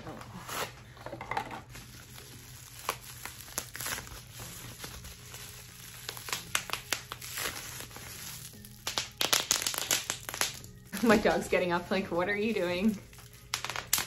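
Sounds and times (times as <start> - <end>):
bubble wrap crinkling: 0.0 - 14.0
bubble wrap clicks: 2.0 - 11.4, 12.8 - 14.0.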